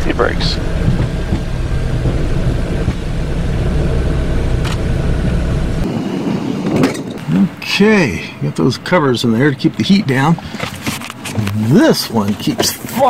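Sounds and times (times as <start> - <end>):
jet engines rumbling: 0.0 - 12.4
wheels rumbling on runway: 0.0 - 13.0.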